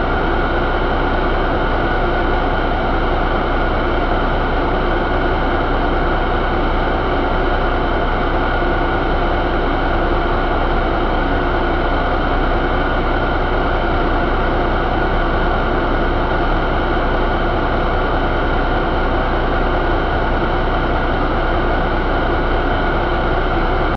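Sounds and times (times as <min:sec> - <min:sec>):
diesel engine running steadily: 0:00.0 - 0:23.9.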